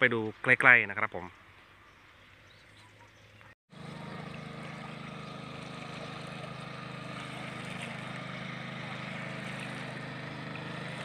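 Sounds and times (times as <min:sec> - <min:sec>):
boat engine droning: 0:03.7 - 0:11.0.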